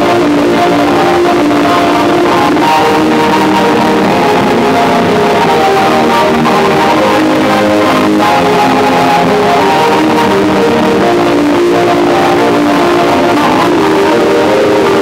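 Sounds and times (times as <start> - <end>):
guitar background music: 0.0 - 15.0.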